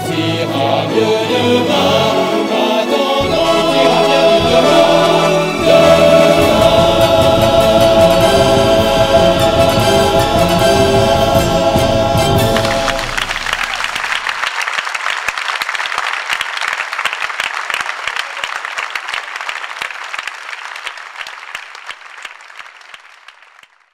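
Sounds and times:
music final chord: 1.0 - 14.0
audience applauding: 3.2 - 23.9.

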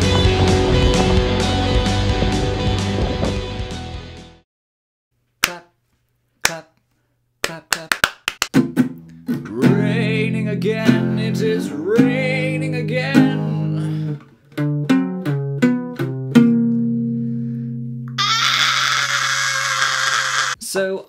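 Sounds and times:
classical guitar strumming: 8.6 - 18.2
man singing with vibrato: 9.4 - 14.2.

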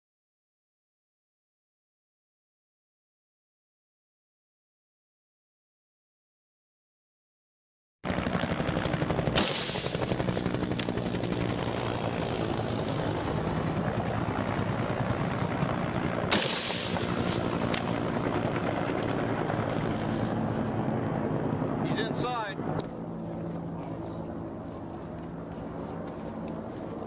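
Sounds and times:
low drone: 8.2 - 27.0
rapid gunfire crackle: 8.4 - 11.0, 15.8 - 17.5
loud sharp gunshots: 9.3 - 10.0, 16.3 - 17.2.

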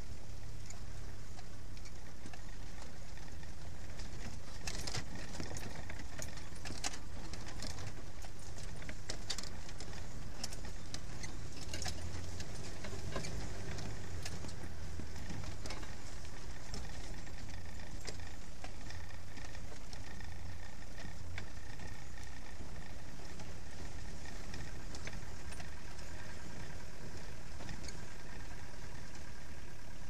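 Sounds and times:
low engine rumble: 0.0 - 30.0
vehicle clicks and rattles: 0.0 - 30.0.

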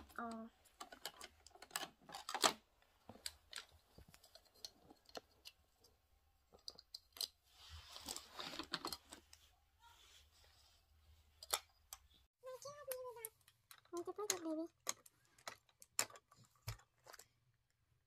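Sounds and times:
plastic toy pieces clicking: 0.2 - 2.6, 12.6 - 17.4
rustling: 0.6 - 12.6.

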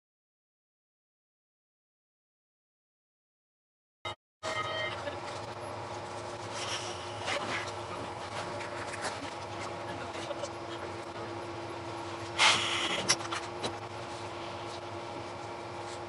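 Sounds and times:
train car hum: 4.4 - 16.0
burst of hiss: 12.4 - 13.0.

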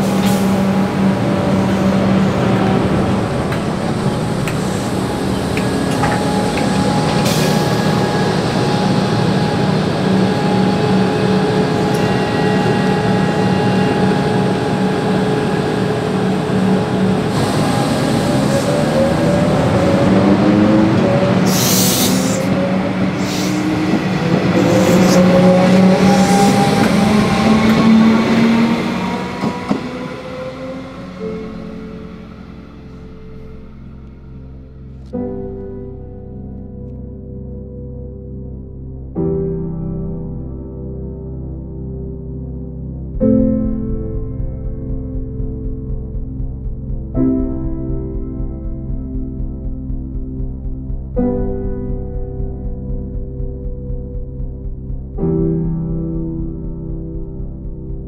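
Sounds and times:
traction motors whining: 0.0 - 33.7
train equipment hum: 0.0 - 35.6
short air hiss: 21.5 - 22.5.

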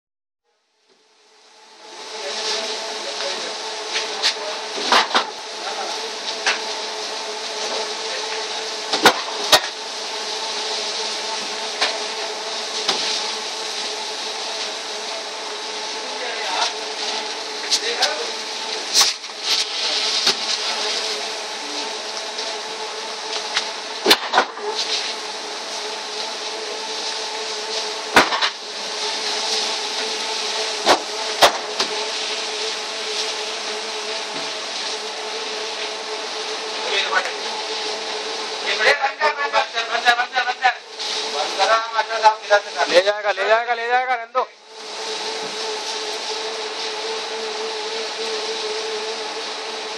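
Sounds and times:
conveyor motor humming: 0.9 - 49.9.

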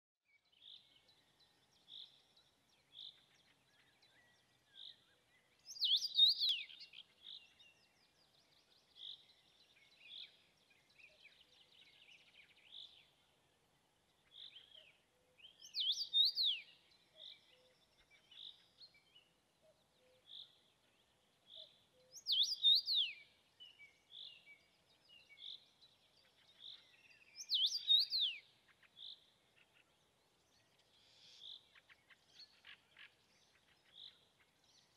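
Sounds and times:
soft bird chirps: 0.3 - 34.9
bird whistled song: 5.6 - 7.9, 14.5 - 17.6, 21.6 - 25.6, 26.6 - 28.5.

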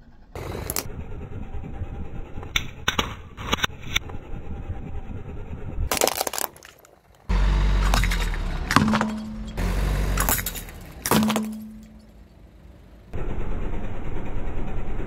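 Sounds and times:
low rumble: 0.0 - 6.0, 7.2 - 12.3
plastic toys cracking under tyre: 0.5 - 0.9, 5.9 - 9.0.

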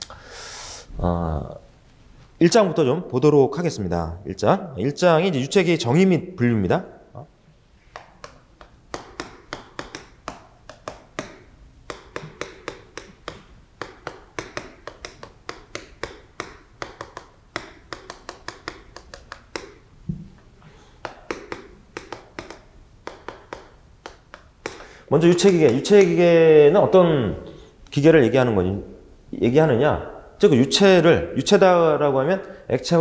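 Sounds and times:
chalk tapping and scraping on blackboard: 7.9 - 20.2, 21.0 - 26.2.

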